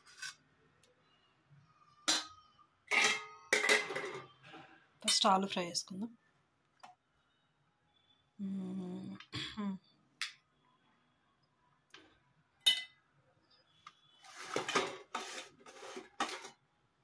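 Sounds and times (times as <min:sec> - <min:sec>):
spoon scraping strokes: 0:14.2 - 0:16.5.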